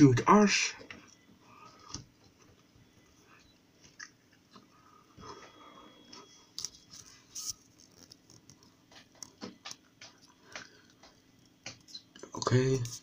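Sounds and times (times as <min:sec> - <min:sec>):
faint clicks and taps: 0:07.8 - 0:13.0.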